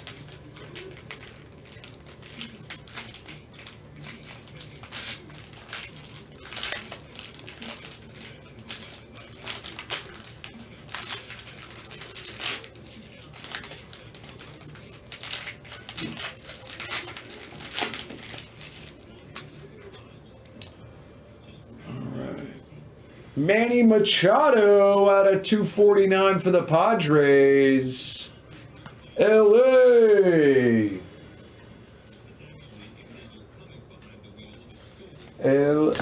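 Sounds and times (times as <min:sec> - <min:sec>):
plastic shrink-wrap crinkling: 0:00.0 - 0:19.6.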